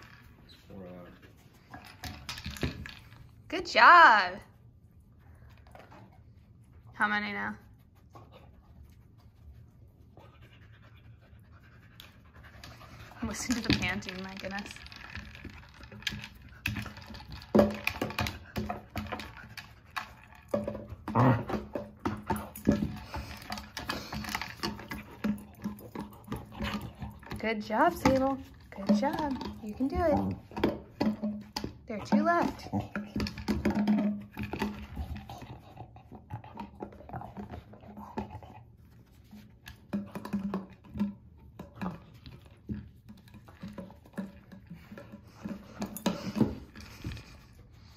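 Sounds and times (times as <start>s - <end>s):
dog panting: 4.7s - 30.8s.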